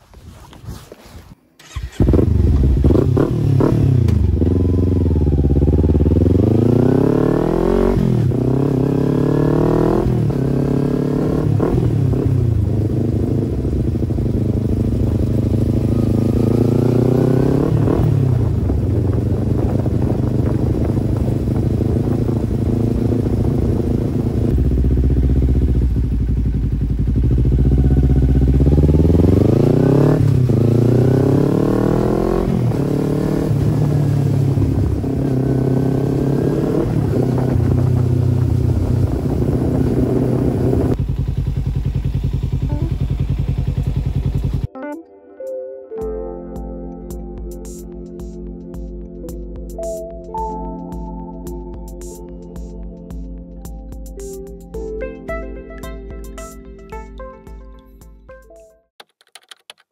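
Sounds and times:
motorcycle engine revving: 1.6 - 44.8.

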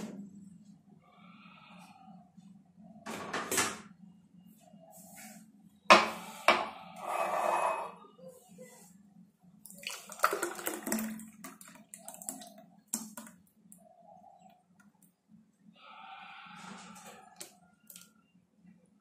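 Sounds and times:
faint hum: 0.0 - 19.0
milkshake pouring into glass: 9.7 - 13.4.

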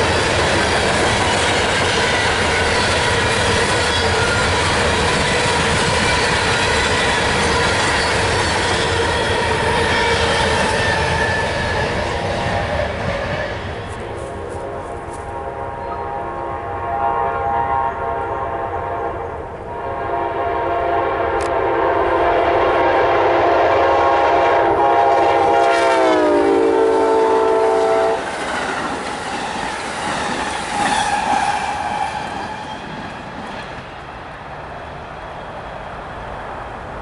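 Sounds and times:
train rumble and clatter: 0.0 - 17.0, 17.6 - 37.0
locomotive air horn blasts: 13.2 - 28.3.

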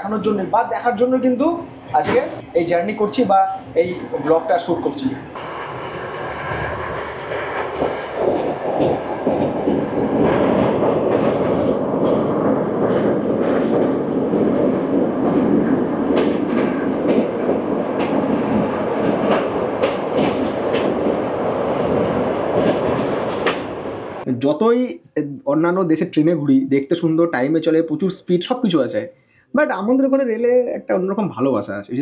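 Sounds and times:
train wheels rumbling on rails: 2.0 - 24.3.

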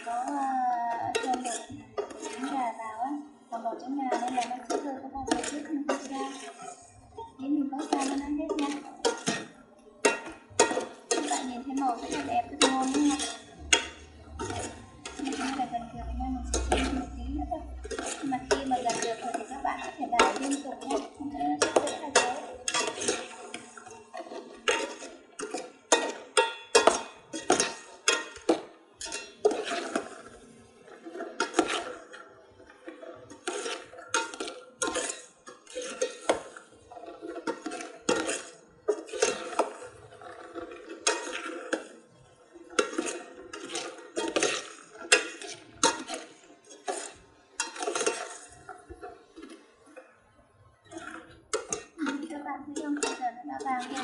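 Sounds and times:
metal skimmer clanking on pot: 7.8 - 15.7, 16.3 - 30.1, 42.7 - 49.5, 50.9 - 54.0.

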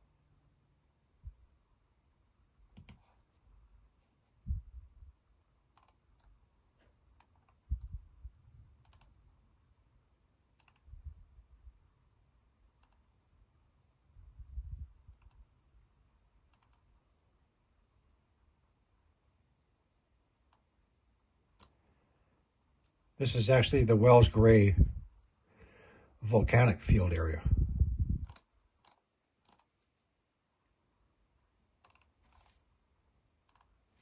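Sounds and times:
computer mouse clicking: 2.7 - 3.2, 5.7 - 6.4, 7.0 - 7.8, 8.8 - 9.2, 10.5 - 10.9, 12.7 - 13.2, 15.1 - 15.5, 16.4 - 16.9, 20.4 - 20.7, 21.5 - 21.8, 28.2 - 30.0, 31.8 - 32.7, 33.4 - 33.8
dull low thumps: 27.4 - 28.3.

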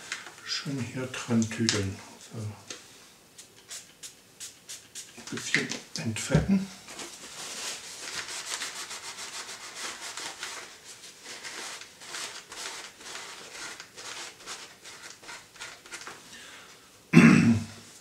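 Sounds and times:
tissue wiping helmet shell: 6.8 - 16.2.

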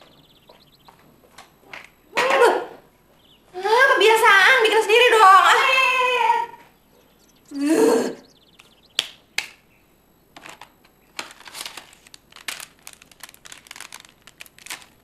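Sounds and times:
sharp clicks: 8.5 - 9.6
packaging crinkling: 10.4 - 15.0.

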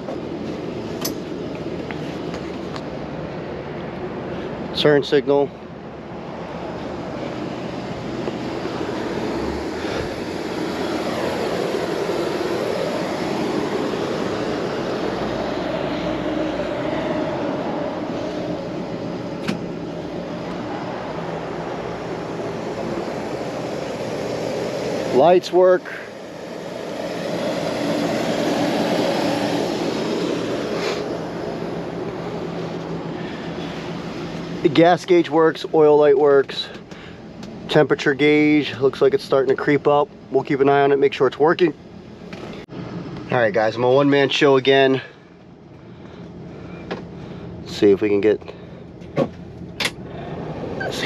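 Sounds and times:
car engine idling: 0.0 - 40.4
broad rushing noise: 0.0 - 51.0.

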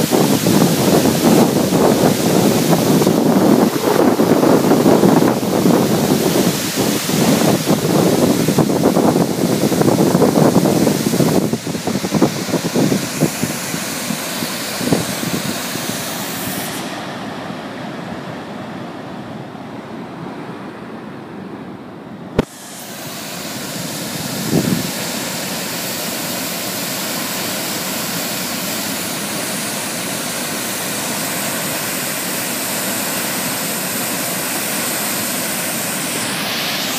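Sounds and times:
wind buffeting microphone: 0.0 - 16.7, 23.8 - 25.1
waterfall roaring: 0.0 - 36.9.

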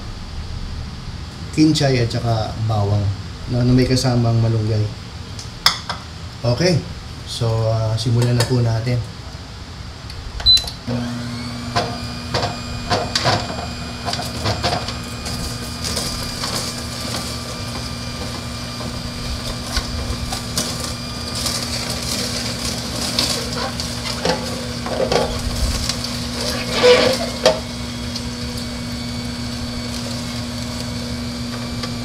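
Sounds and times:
juicer motor humming: 10.4 - 32.0
celery crunching in juicer: 10.8 - 32.0.

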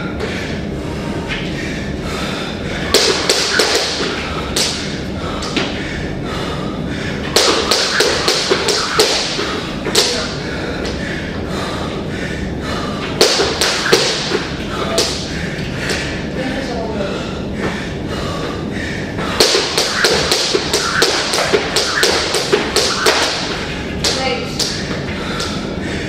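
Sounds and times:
steady background noise: 0.0 - 26.0.

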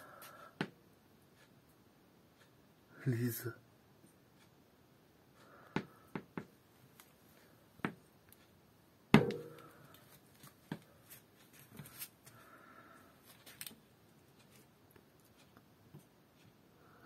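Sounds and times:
loud thump: 9.2 - 9.7.

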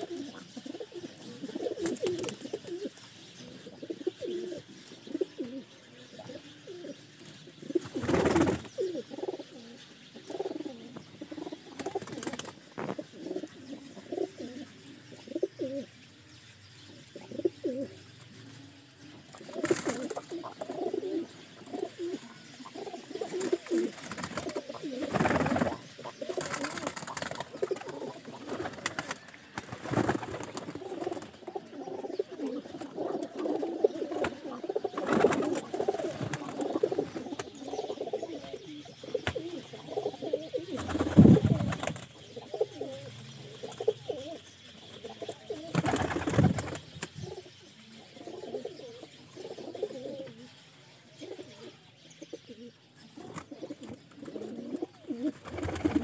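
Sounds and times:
pigeons cooing: 0.0 - 16.0, 16.9 - 56.0.

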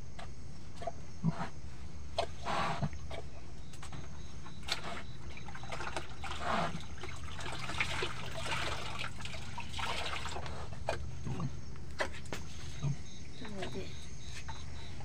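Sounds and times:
water splashing in a bucket: 4.6 - 11.1.

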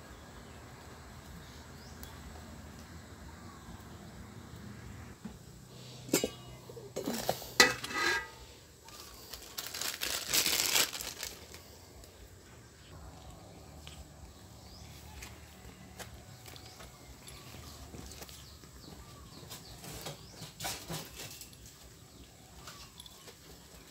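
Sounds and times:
metal basin clattering: 6.1 - 8.4
plastic bag rustling: 7.0 - 11.8.

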